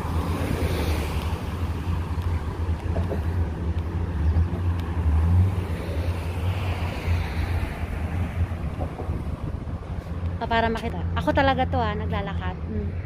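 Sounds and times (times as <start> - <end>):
road traffic passing: 0.0 - 13.0
wind buffeting microphone: 0.0 - 13.0.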